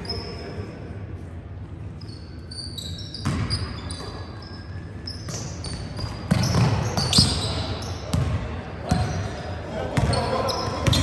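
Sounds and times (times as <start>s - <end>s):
sneakers squeaking on floor: 0.0s - 0.5s, 1.9s - 11.0s
basketball bouncing: 3.2s - 3.6s, 5.3s - 7.4s, 8.1s - 9.2s, 10.0s - 10.2s.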